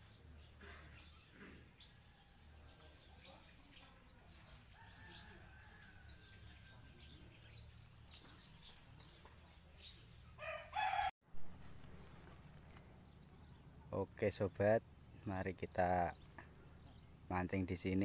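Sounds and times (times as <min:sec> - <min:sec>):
insect trill: 0:00.0 - 0:11.1
rooster crowing: 0:04.5 - 0:07.1, 0:10.4 - 0:11.1.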